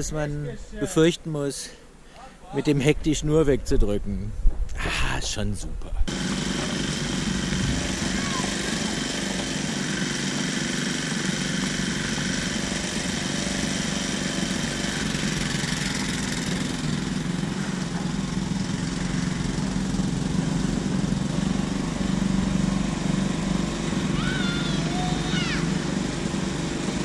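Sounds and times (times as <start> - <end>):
excavator engine running: 6.1 - 27.0.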